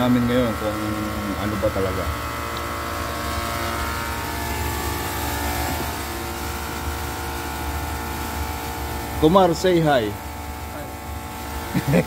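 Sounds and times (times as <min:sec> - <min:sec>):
ice cream machine humming: 0:00.0 - 0:12.0.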